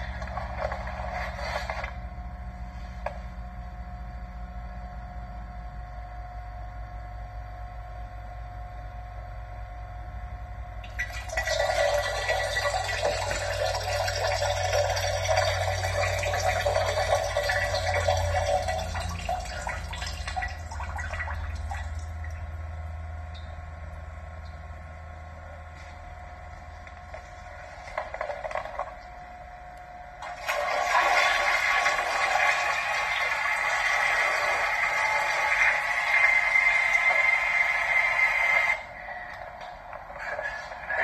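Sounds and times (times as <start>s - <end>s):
toilet flushing: 0.0s - 2.0s, 10.8s - 22.5s, 27.1s - 29.0s, 30.2s - 41.0s.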